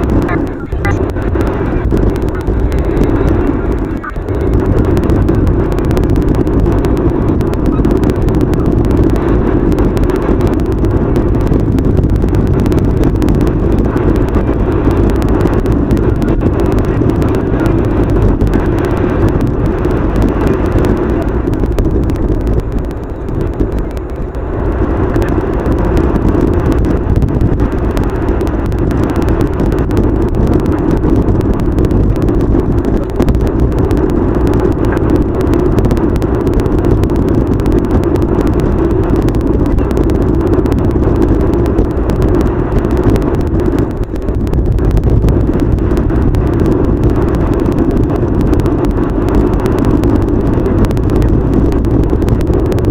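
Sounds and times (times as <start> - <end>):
car road and engine noise: 0.0 - 52.9.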